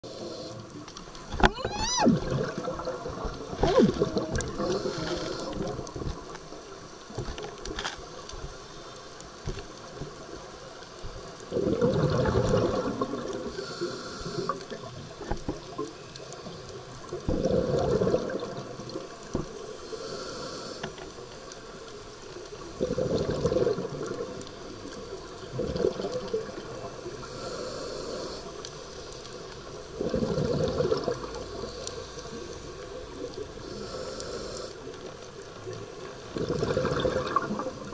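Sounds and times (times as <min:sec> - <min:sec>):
regulator inhale hiss: 0:00.0 - 0:00.8, 0:04.5 - 0:06.0, 0:13.4 - 0:14.9, 0:19.5 - 0:21.8, 0:27.1 - 0:30.1, 0:31.5 - 0:35.2
exhaled air bubbling: 0:00.0 - 0:06.3, 0:11.5 - 0:15.8, 0:17.0 - 0:19.5, 0:22.6 - 0:28.6, 0:29.2 - 0:37.9.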